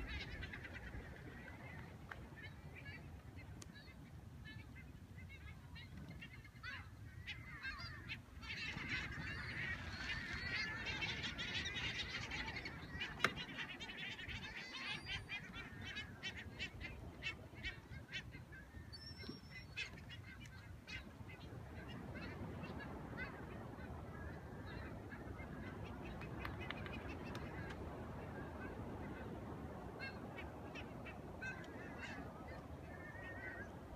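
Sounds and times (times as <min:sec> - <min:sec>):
seabirds calling: 0:00.0 - 0:33.9.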